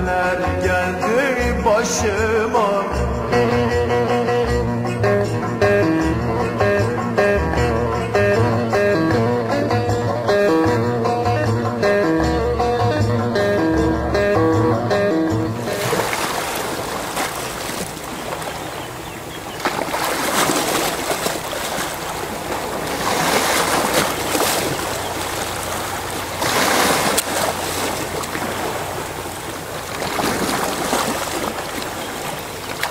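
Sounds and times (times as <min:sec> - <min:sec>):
waves washing on shore: 0:15.6 - 0:32.9.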